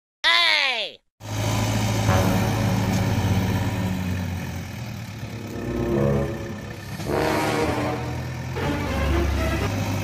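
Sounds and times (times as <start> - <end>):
background music low held notes: 5.2 - 9.7.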